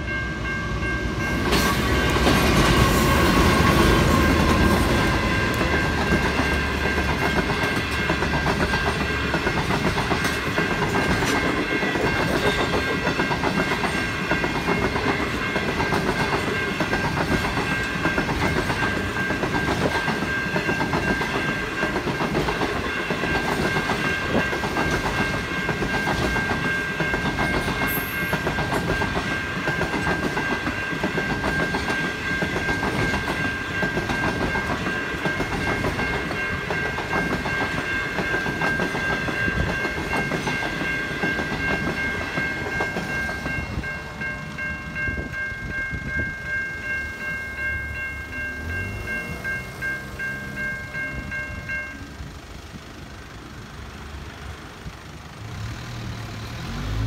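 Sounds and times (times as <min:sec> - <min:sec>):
level crossing bells ringing: 0:00.0 - 0:52.2
diesel locomotive engine rumble: 0:00.0 - 0:57.0
train wheels clacking over rail joints: 0:01.4 - 0:45.4.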